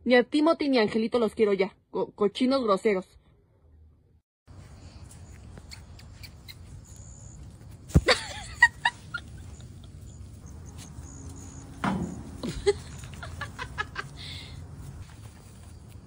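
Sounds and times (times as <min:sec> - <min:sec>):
puppies yipping and squeaking: 0:05.4 - 0:07.4
sharp thump: 0:11.8 - 0:12.5.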